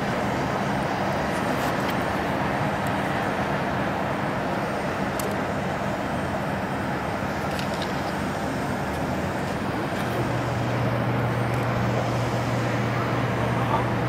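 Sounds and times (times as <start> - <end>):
jet engines landing: 0.0 - 14.0.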